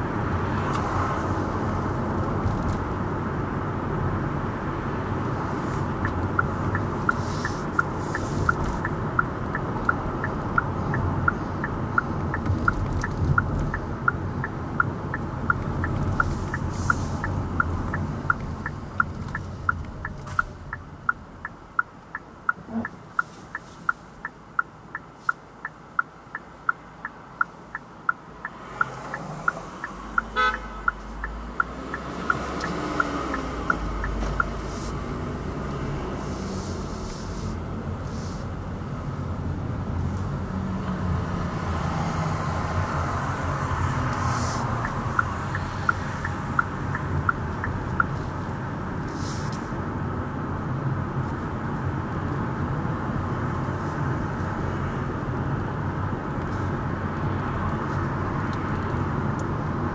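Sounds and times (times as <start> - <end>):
engine and road noise: 0.0 - 59.9
turn signal ticking: 0.0 - 59.9
short car horn toot: 30.3 - 30.9.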